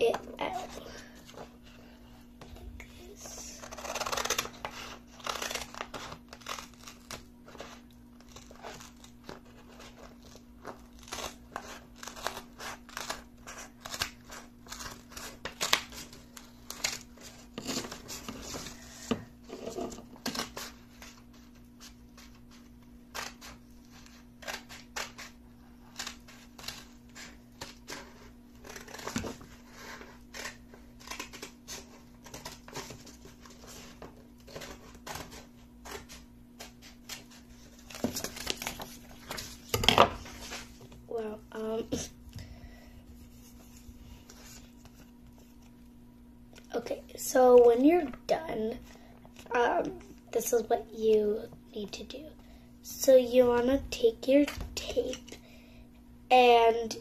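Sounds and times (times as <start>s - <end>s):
scissors snipping paper: 3.6s - 18.4s, 22.2s - 39.8s.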